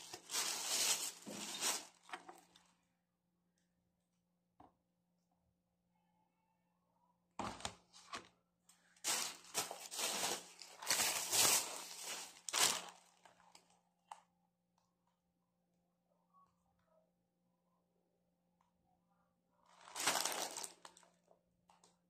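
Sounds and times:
plastic bag crinkling and rustling: 0.0 - 2.7, 9.0 - 13.8, 19.8 - 21.1.

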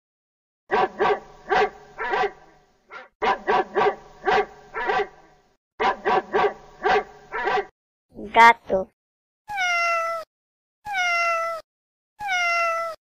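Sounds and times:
dog barking: 0.7 - 7.7.

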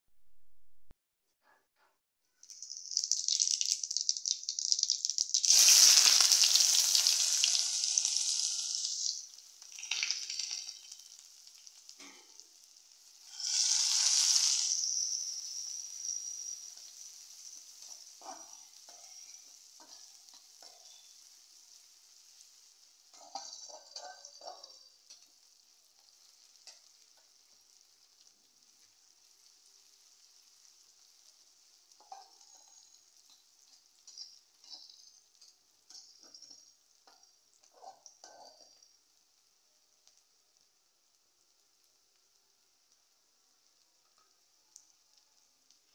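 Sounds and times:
hot oil sizzling in a pan: 2.3 - 45.9
metal spatula scraping a pan: 13.2 - 21.3, 23.1 - 25.3, 32.0 - 38.8.

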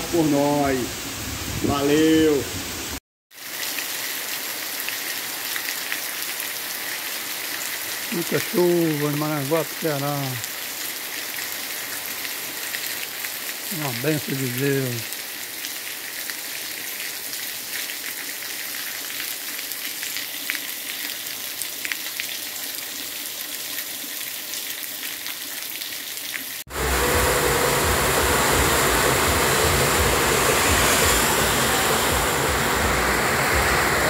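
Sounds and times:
heavy downpour: 0.0 - 15.8, 26.7 - 34.0
rain falling on garden: 3.3 - 34.0.

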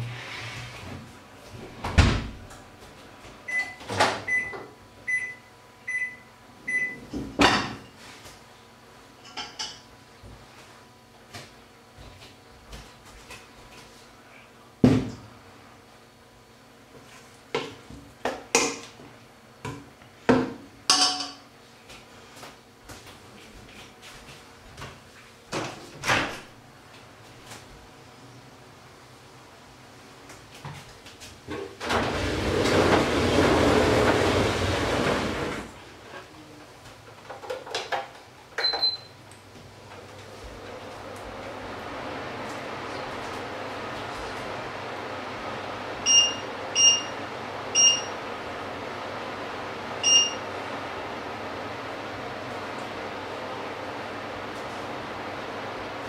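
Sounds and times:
kitchen clinks and knocks: 20.9 - 21.4.

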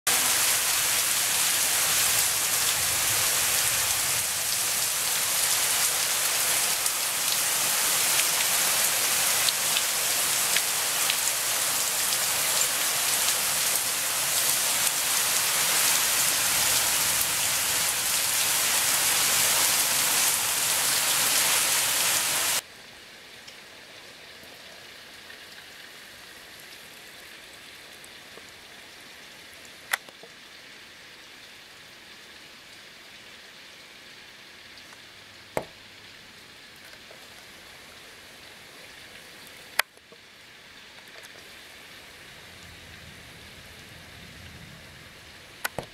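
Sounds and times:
heavy rain hissing: 0.1 - 22.6, 41.4 - 45.9.

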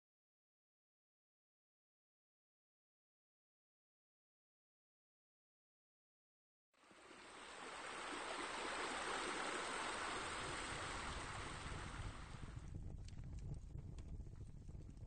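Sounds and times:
running water: 6.8 - 12.6.

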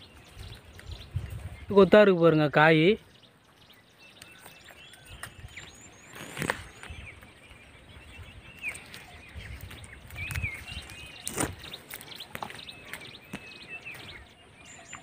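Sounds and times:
rustling leafy branches: 0.0 - 14.7
small birds chirping: 0.0 - 15.0
sharp snaps of branches: 6.0 - 6.9, 11.2 - 13.5.

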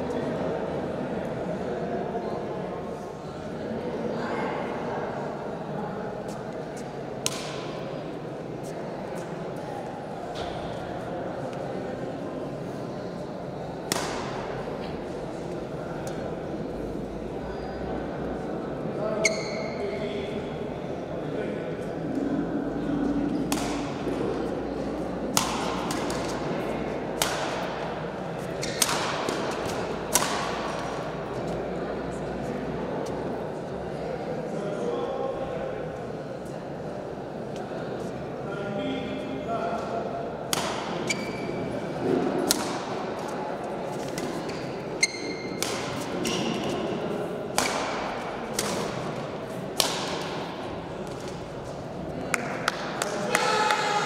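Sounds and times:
sports hall noise: 0.0 - 54.0
rackets hitting shuttlecock: 7.2 - 7.8, 13.9 - 14.5, 23.4 - 24.2, 25.3 - 27.9, 28.6 - 31.0, 40.5 - 41.3, 42.2 - 43.3, 44.0 - 51.4
shoes squeaking on court: 19.2 - 19.8, 41.0 - 41.7, 44.0 - 45.6
badminton racket hitting shuttlecock: 23.5 - 23.9, 27.2 - 27.8, 28.7 - 30.8, 45.5 - 46.8, 47.5 - 50.5.

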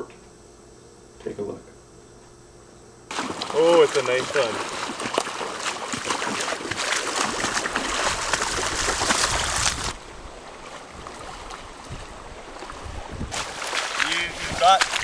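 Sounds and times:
rushing river water: 3.1 - 15.0
water splashing in shallows: 3.1 - 15.0
wind rumble on microphone: 7.5 - 13.5, 14.2 - 15.0.

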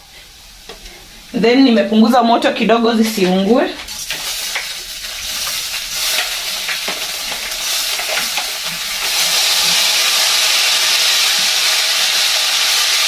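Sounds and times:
spaghetti sizzling in a pan: 0.0 - 13.0.

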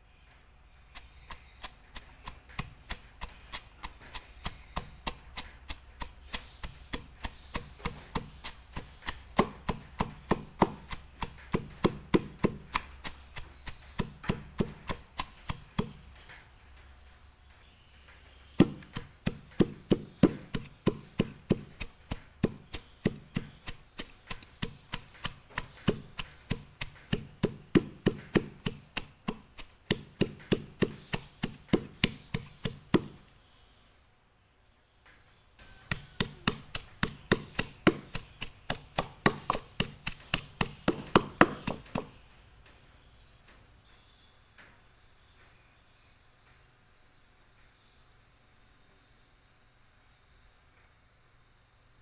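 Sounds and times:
pestle pounding in clay mortar: 0.9 - 16.2, 18.5 - 33.2, 35.6 - 42.2.

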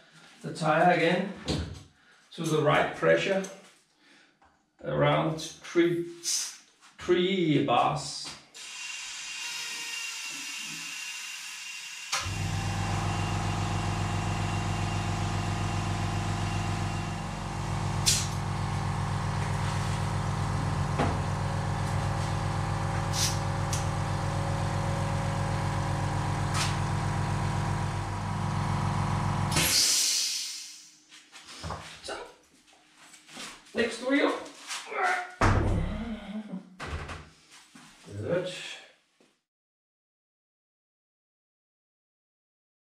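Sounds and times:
air compressor running: 8.6 - 30.9
hiss of air: 23.1 - 23.4, 29.5 - 31.0.

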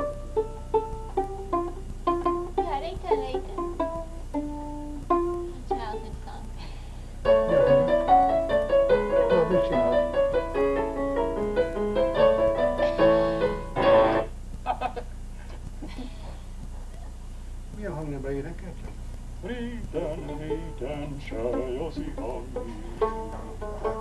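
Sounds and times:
piano folk tune: 0.0 - 6.3, 7.2 - 14.3, 19.9 - 24.0.

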